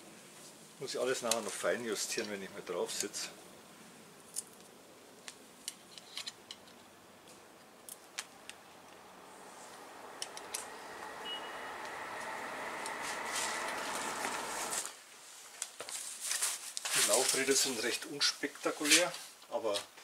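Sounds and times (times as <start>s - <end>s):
rustling noise: 9.3s - 19.4s.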